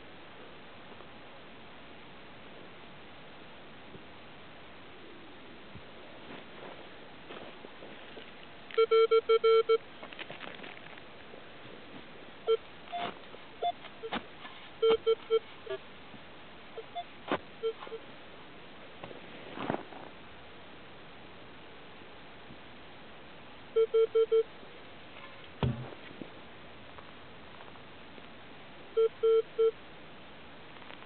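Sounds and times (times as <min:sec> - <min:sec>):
metal detector beeps: 0:08.8 - 0:09.8, 0:12.5 - 0:14.2, 0:14.8 - 0:15.8, 0:16.8 - 0:18.0, 0:23.8 - 0:24.4, 0:29.0 - 0:29.7.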